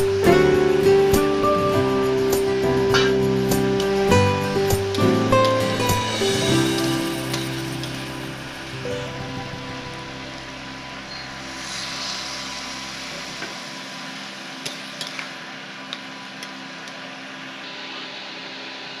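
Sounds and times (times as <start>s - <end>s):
curry sizzling in a metal pan: 0.0s - 16.2s.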